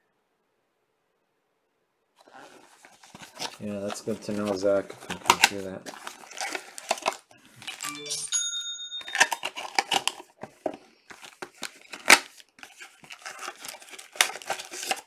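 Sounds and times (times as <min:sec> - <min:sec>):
foil wrappers crinkling and tearing: 0:02.2 - 0:07.8, 0:09.1 - 0:15.0
short electronic chime: 0:07.8 - 0:09.5.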